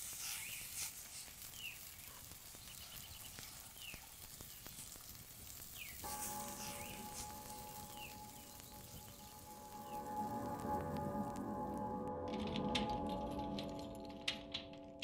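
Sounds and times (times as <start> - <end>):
steady high hiss: 0.0 - 13.8
bird chirping: 1.5 - 4.9, 5.7 - 11.9
music: 6.0 - 15.0.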